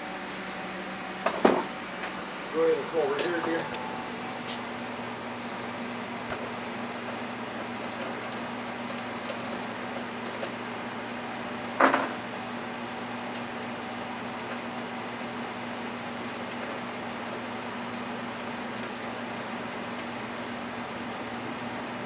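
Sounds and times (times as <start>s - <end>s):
drill press humming: 1.2s - 10.9s.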